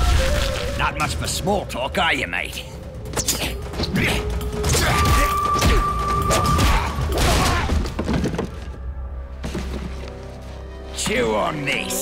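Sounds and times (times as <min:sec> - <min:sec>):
background music: 0:00.0 - 0:12.0
cardboard boxes crashing down: 0:07.2 - 0:08.7.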